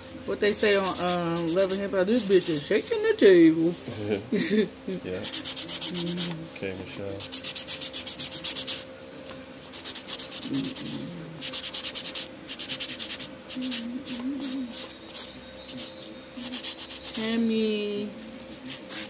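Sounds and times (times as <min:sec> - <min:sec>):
nail buffer rasping on nails: 0:00.5 - 0:03.2, 0:05.2 - 0:06.4, 0:07.2 - 0:08.9, 0:09.7 - 0:17.4.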